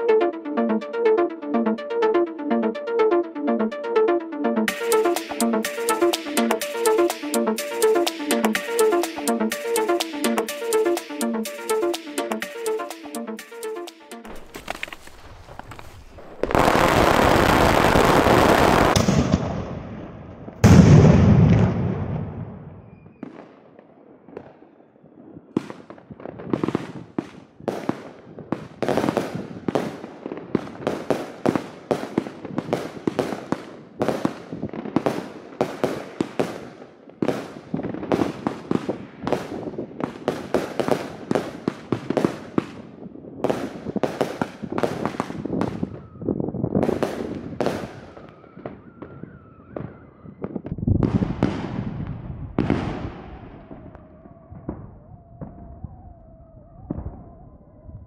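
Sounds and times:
firework bangs: 0:14.3 - 0:19.9.

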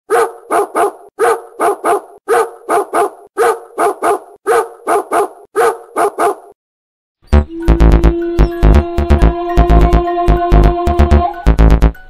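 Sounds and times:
dog barking: 0:00.1 - 0:06.6.

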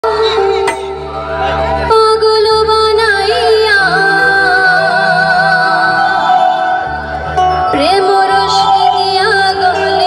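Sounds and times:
bass line: 0:00.0 - 0:10.0
live band music: 0:05.1 - 0:10.0.

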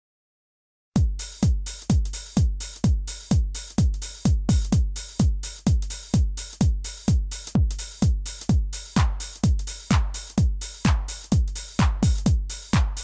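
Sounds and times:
hi-hat hiss: 0:01.0 - 0:13.0
kick drum: 0:01.0 - 0:13.0
electronic dance music: 0:01.2 - 0:13.0.

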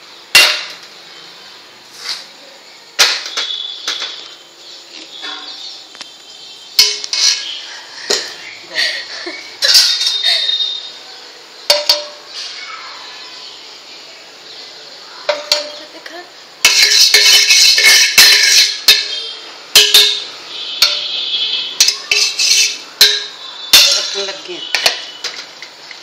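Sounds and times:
sharp metal clanks: 0:00.3 - 0:00.8, 0:03.0 - 0:04.2, 0:06.8 - 0:07.5, 0:09.6 - 0:10.8, 0:11.7 - 0:12.2, 0:15.3 - 0:15.8, 0:16.6 - 0:21.2, 0:21.8 - 0:25.5
metal cookware clattering: 0:00.3 - 0:00.9, 0:03.0 - 0:04.4, 0:05.0 - 0:05.6, 0:06.8 - 0:10.9, 0:11.7 - 0:12.4, 0:15.3 - 0:16.0, 0:16.6 - 0:25.8
ringing scraping metal: 0:06.8 - 0:07.7, 0:09.6 - 0:11.0, 0:16.6 - 0:25.5.

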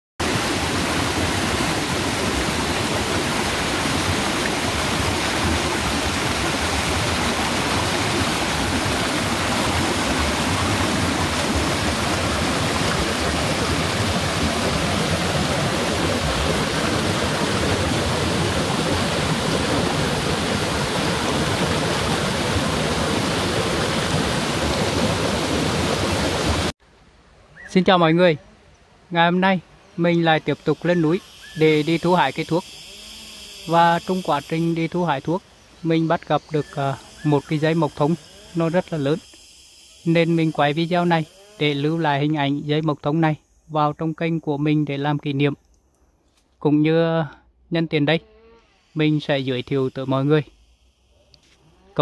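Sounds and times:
mountain stream rushing over boulders: 0:00.2 - 0:26.7.

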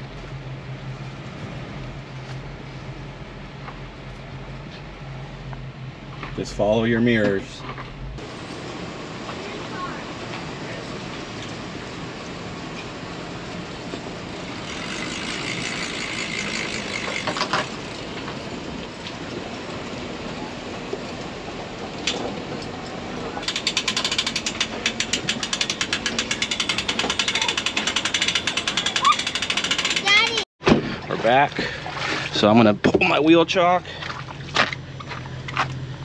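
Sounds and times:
wheels rattling over boards: 0:09.2 - 0:31.8
trailer rumbling on wooden planks: 0:10.1 - 0:33.2.

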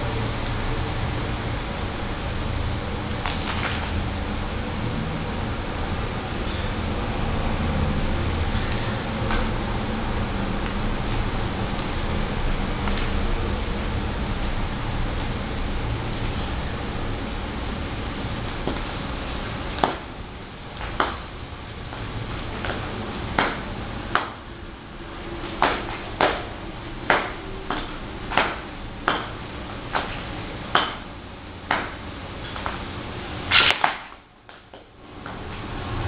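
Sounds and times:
footsteps clicking on stone tiles: 0:27.1 - 0:30.2.

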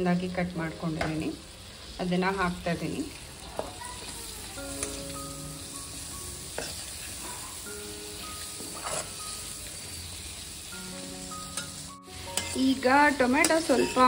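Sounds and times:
food sizzling in hot oil: 0:00.0 - 0:14.0
soft background music: 0:00.0 - 0:14.0
metal spoon scraping a pan: 0:06.6 - 0:07.6, 0:08.4 - 0:10.0, 0:11.4 - 0:14.0.

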